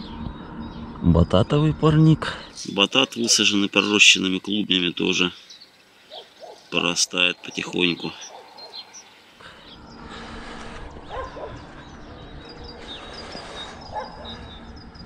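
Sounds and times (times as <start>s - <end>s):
steady rustling hiss: 2.6s - 11.1s
whining animal calls: 8.2s - 14.8s.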